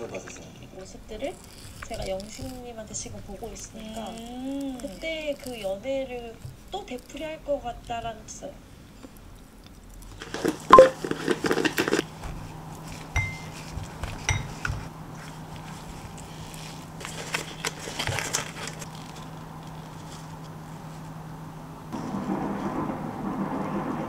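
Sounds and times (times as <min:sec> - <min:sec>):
pouch rustling: 0:01.2 - 0:07.3, 0:10.1 - 0:20.4
spoon knocking glass bowl: 0:10.8 - 0:11.0, 0:13.2 - 0:13.5, 0:14.3 - 0:14.6.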